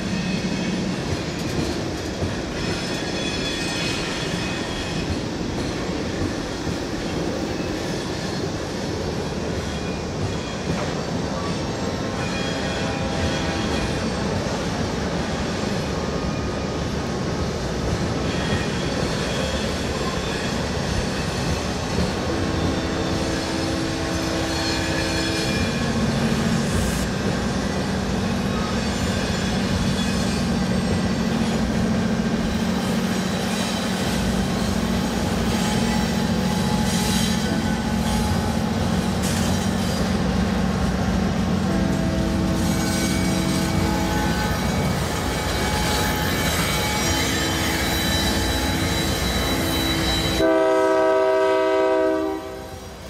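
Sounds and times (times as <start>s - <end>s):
freight train rumbling: 0.0s - 53.0s
faint wheel squeal: 42.5s - 50.4s.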